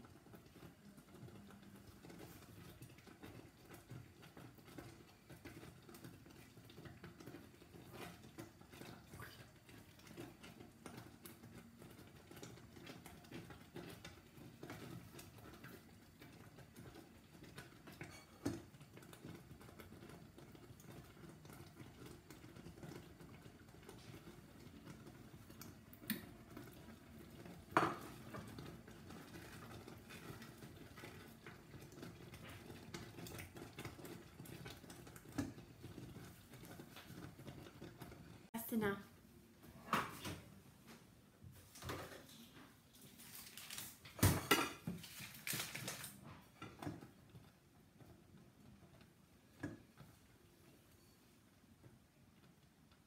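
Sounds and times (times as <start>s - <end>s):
spoon stirring thick jam: 0.1s - 38.4s.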